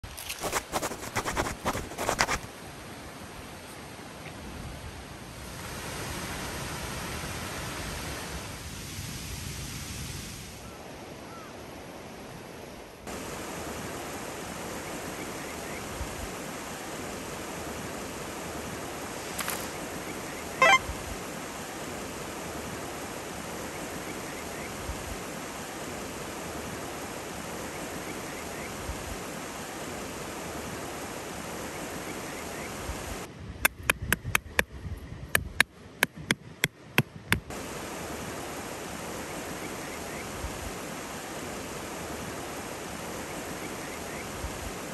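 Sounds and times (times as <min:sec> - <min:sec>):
stream rushing: 0:12.0 - 0:33.3, 0:36.6 - 0:44.9.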